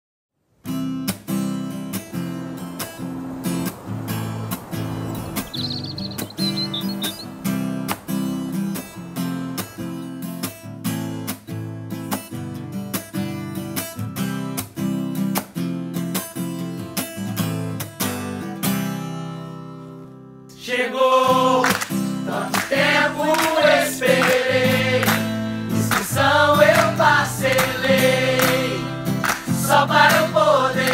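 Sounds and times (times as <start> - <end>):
strummed acoustic guitar: 0.6 - 20.5, 21.2 - 30.9
people singing: 20.5 - 30.9.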